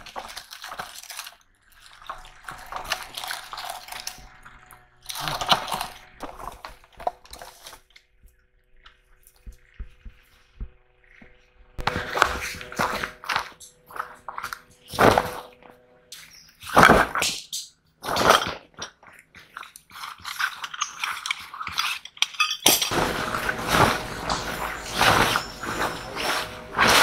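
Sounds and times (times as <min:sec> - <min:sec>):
bags rustling: 0:00.0 - 0:07.9, 0:11.8 - 0:17.1, 0:22.9 - 0:27.0
scraping: 0:18.0 - 0:27.0
clinks and thunks of gear: 0:20.3 - 0:27.0
nylon tent fabric swishing: 0:22.9 - 0:27.0.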